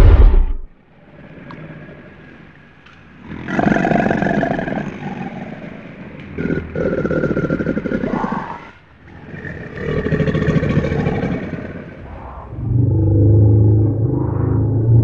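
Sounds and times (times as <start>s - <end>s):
dinosaur roar: 3.2s - 15.0s
rough pulsing roar: 3.2s - 15.0s.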